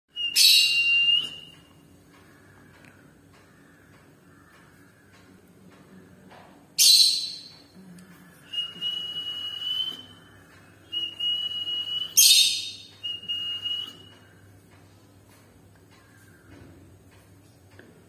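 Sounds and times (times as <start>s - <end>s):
high bird whistles: 0.1s - 1.6s, 10.9s - 14.2s.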